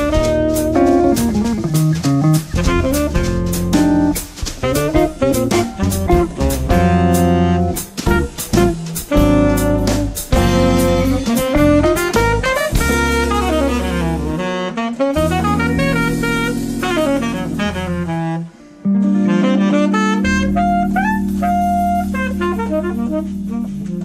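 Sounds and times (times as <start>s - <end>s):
bass: 0.0s - 24.0s
drums: 0.0s - 24.0s
guitar: 0.0s - 24.0s
saxophone: 0.0s - 24.0s.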